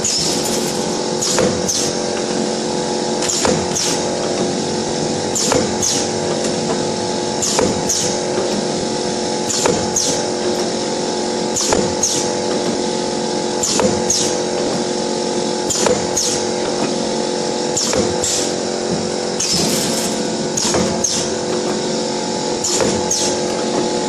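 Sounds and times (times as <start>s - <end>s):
machine motor and gear hum: 0.0s - 24.0s
double mechanical stroke: 17.7s - 24.0s.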